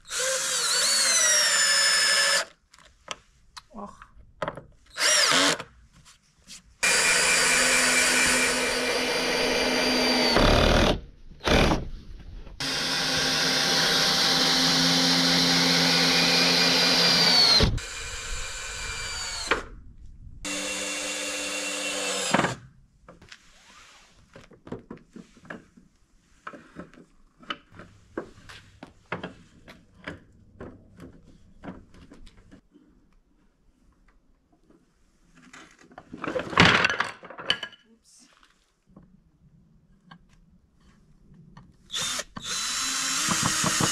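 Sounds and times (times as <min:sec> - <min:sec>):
electric drill drilling wood: 0:00.1 - 0:02.4, 0:04.9 - 0:05.6, 0:06.8 - 0:11.8, 0:12.6 - 0:19.7, 0:20.4 - 0:22.6, 0:41.9 - 0:43.9.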